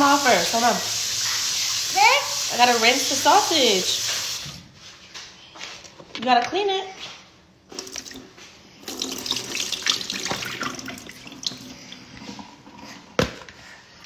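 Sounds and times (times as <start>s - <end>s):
tap water running into plastic bowl: 8.8s - 12.4s.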